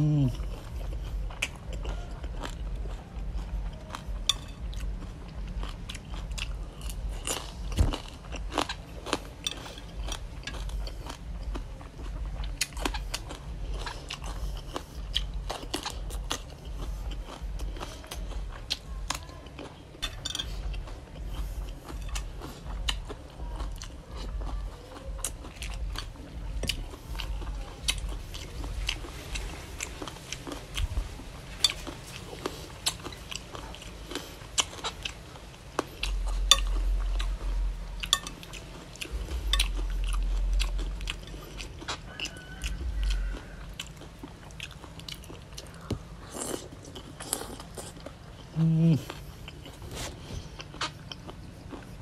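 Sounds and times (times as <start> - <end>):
person chewing crunchy food: 0.0 - 52.0
low rumble: 20.0 - 46.3.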